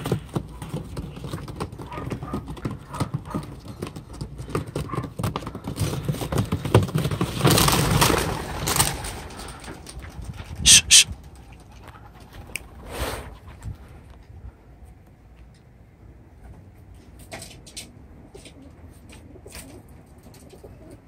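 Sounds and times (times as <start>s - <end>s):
wings flapping: 0.0s - 12.8s
pigeons shuffling in wire cage: 0.0s - 14.0s, 16.4s - 21.0s.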